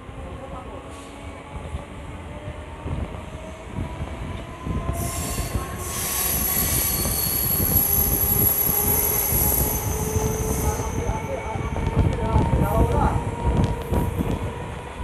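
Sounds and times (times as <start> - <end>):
train wheels rumbling on track: 0.0 - 15.0
high wheel squeal: 5.0 - 11.4.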